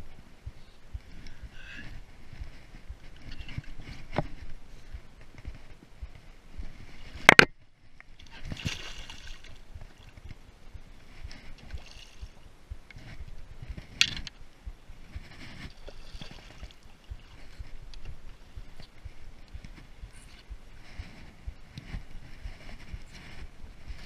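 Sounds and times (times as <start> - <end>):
water splashing against kayak: 8.2 - 14.3, 14.9 - 24.0.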